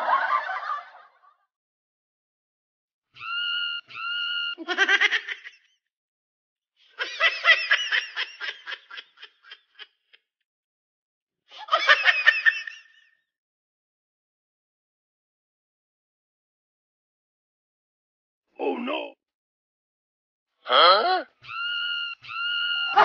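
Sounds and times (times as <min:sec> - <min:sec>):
laughter: 0:00.0 - 0:01.5, 0:03.2 - 0:05.8, 0:06.9 - 0:10.3, 0:11.5 - 0:13.3, 0:21.6 - 0:23.0.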